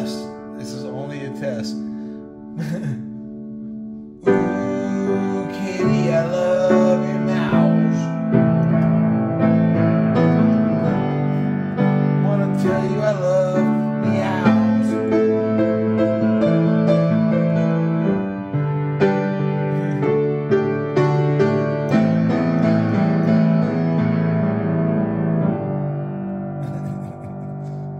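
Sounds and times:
piano playing chords: 0:00.0 - 0:27.9
person singing: 0:04.2 - 0:08.3, 0:12.2 - 0:15.4, 0:26.6 - 0:27.9.

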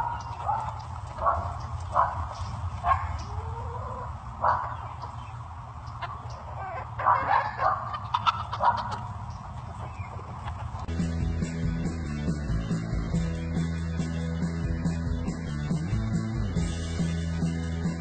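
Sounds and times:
steady low rumble: 0:09.2 - 0:18.0.

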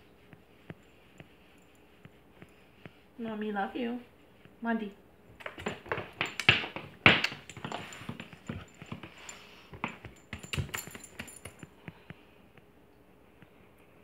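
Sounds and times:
dog rustling against person: 0:05.3 - 0:12.0
metal collar tag jingling: 0:05.4 - 0:11.8.

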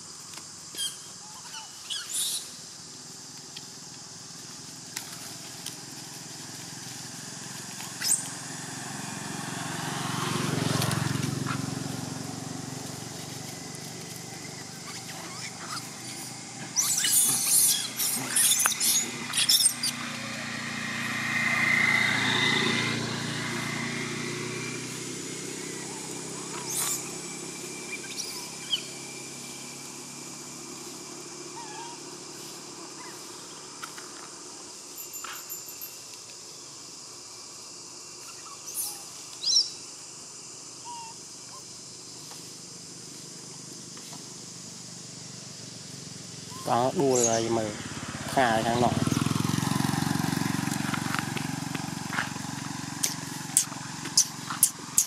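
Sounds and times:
high insect drone: 0:00.0 - 0:55.0
monkeys squealing: 0:00.7 - 0:02.6, 0:07.8 - 0:08.4, 0:14.3 - 0:20.8, 0:25.6 - 0:27.2, 0:27.8 - 0:29.0, 0:31.5 - 0:32.1, 0:38.2 - 0:39.7, 0:40.8 - 0:41.7, 0:46.4 - 0:47.5, 0:53.0 - 0:55.0
vehicle passing: 0:05.2 - 0:34.8, 0:45.6 - 0:55.0
sharp high-pitched squeaks: 0:16.8 - 0:20.0.

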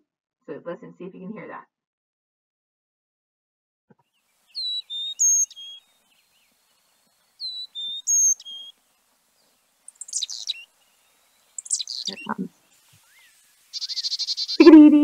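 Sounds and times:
buzzy bird calls: 0:04.2 - 0:15.0
bird whistled song: 0:04.4 - 0:08.8, 0:09.4 - 0:14.8.

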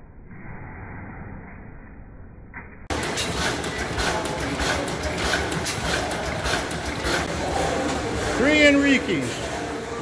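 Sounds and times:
gas engine clattering: 0:02.9 - 0:07.3.

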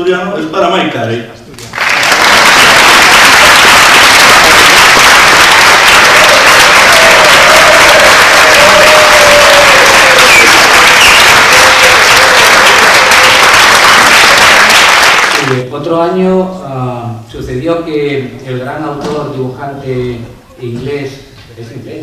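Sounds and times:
crowd applauding: 0:01.6 - 0:15.6.

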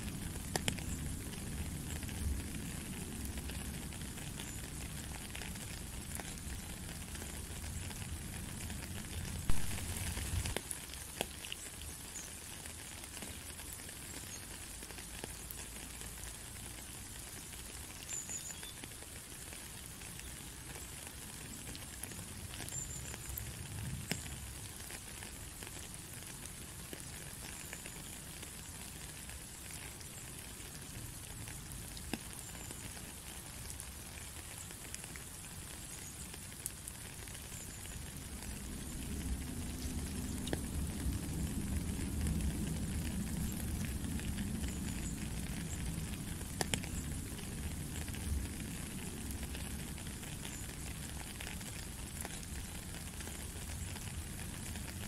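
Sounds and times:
rain falling on a puddle: 0:00.0 - 0:55.0.

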